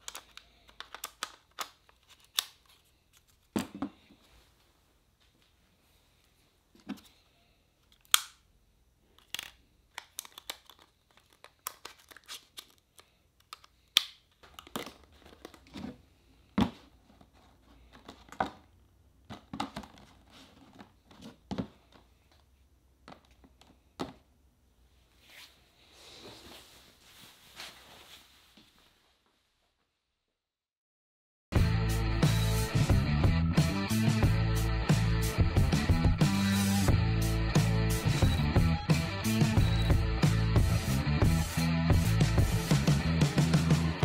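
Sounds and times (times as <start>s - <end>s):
cardboard packaging crinkling: 0.0s - 3.6s, 9.1s - 13.2s.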